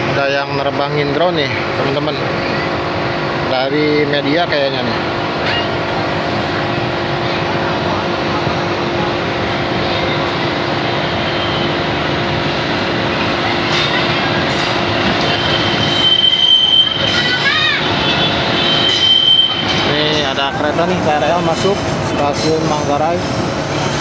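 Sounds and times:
electric train hum and rumble: 0.0 - 24.0
train wheel squeal: 13.6 - 24.0.

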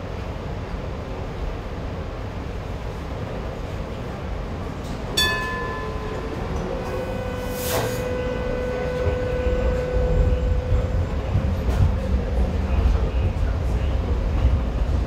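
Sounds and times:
train wheels rumbling on track: 0.0 - 15.0
short ringing ding: 5.2 - 8.7
steady whine: 5.2 - 13.2.

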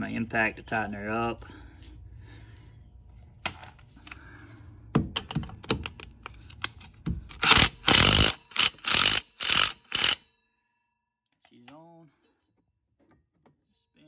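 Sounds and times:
impact wrench hammering: 7.2 - 10.2.

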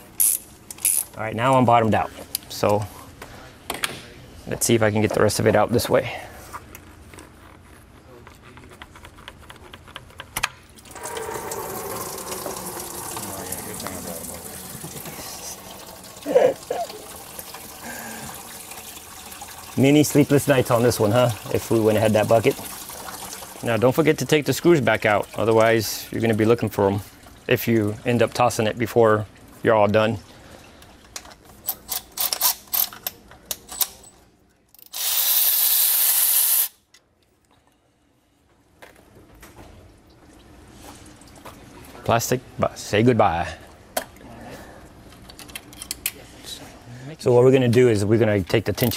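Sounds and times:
coolant pouring into a bucket: 10.8 - 30.7.

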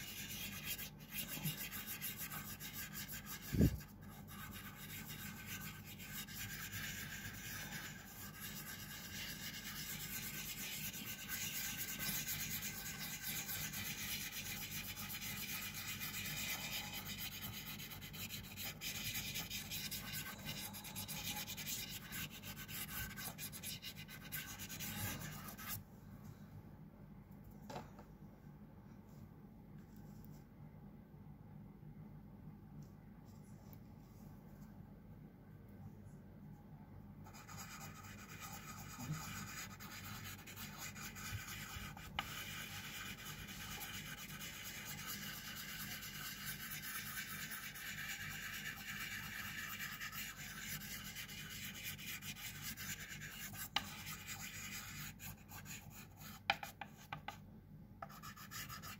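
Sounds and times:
pastel scratching on paper: 0.0 - 25.8, 37.3 - 57.4, 58.0 - 58.9.

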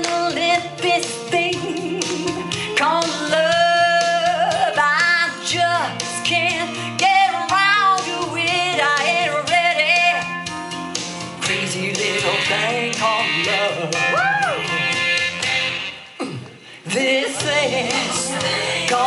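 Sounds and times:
woman singing with vibrato: 0.0 - 10.3, 16.9 - 19.0
instrumental backing music: 0.0 - 19.0.

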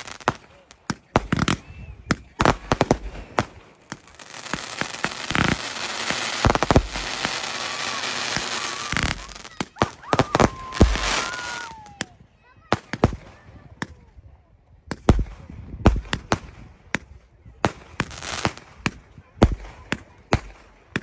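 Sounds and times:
fireworks crackling hiss: 0.0 - 12.0
fireworks bangs: 0.0 - 14.0.

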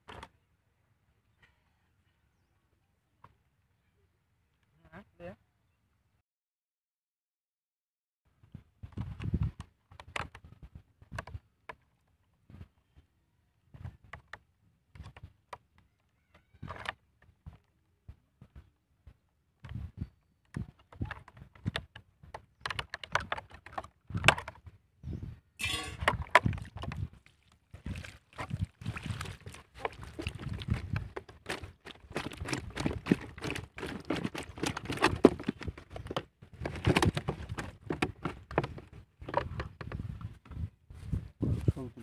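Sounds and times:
fish flopping on grass: 25.8 - 35.8
water spilling: 27.2 - 30.8
plastic trap and bag crinkling: 28.1 - 38.6.

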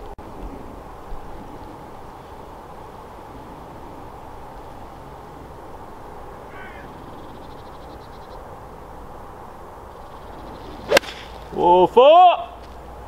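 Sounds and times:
outdoor background noise: 0.0 - 13.0
faint bird call: 6.5 - 8.4
golf club striking ball: 10.6 - 11.5.

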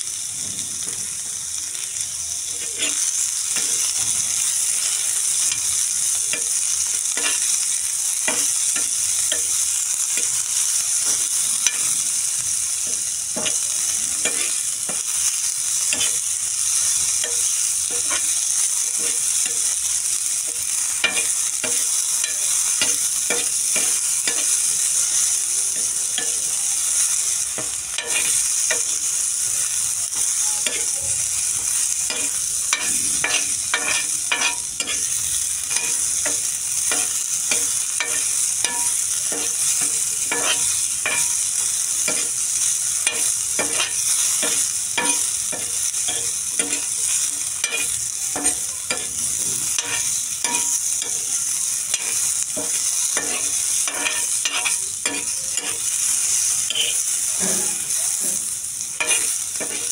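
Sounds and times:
vegetables sizzling in oil: 0.0 - 59.9
utensil scraping pan: 31.8 - 41.4, 43.0 - 46.9, 51.9 - 58.4, 59.0 - 59.9.

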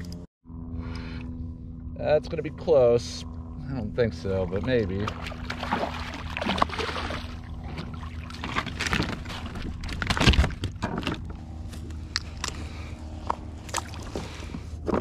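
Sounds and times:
low hum: 0.0 - 15.0
fish splashing at the surface: 5.0 - 9.8.

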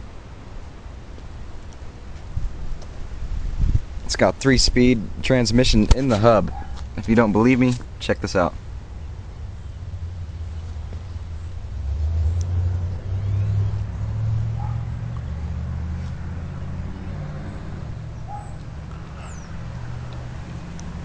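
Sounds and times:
vehicle engine rumbling: 0.0 - 21.0
faint bird chirps: 12.2 - 14.1.

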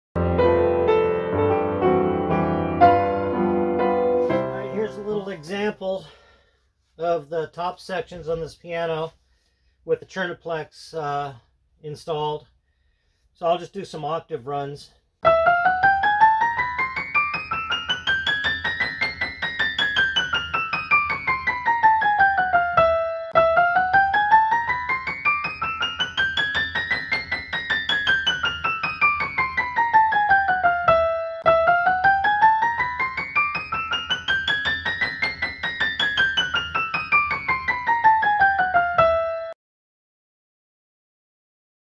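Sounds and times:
piano scale runs: 15.2 - 39.6.

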